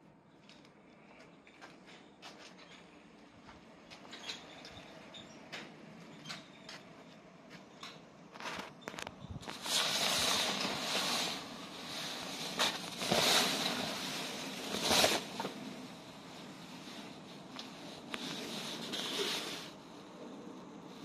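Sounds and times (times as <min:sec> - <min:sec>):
cloth cover rustling and dragging: 0:08.4 - 0:19.9.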